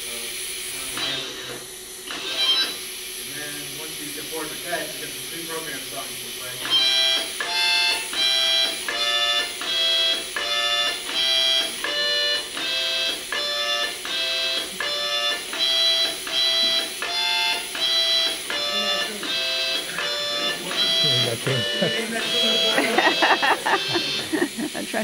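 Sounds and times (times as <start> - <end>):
automatic harmonica playing: 6.7 - 25.0.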